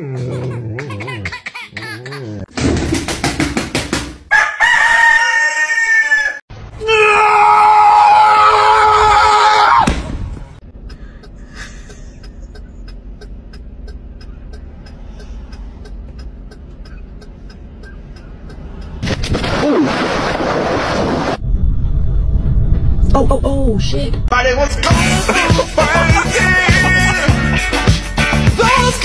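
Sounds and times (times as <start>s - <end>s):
rooster crowing: 4.3s - 6.4s.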